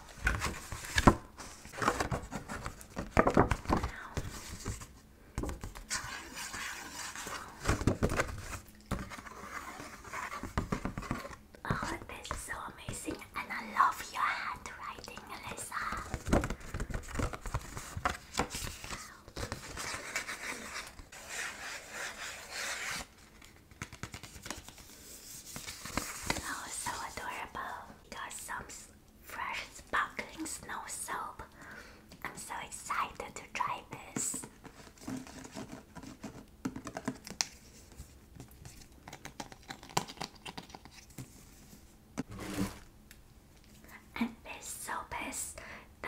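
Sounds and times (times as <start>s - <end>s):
rubbing and scratching on surface: 5.6s - 13.2s, 17.0s - 27.3s, 34.3s - 42.9s.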